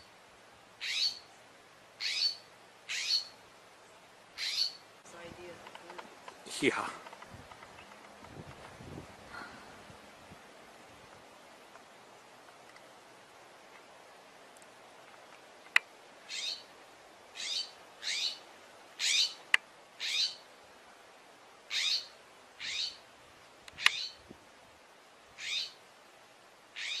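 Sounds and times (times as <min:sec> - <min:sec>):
bird calling falling notes: 0:02.0 - 0:03.3.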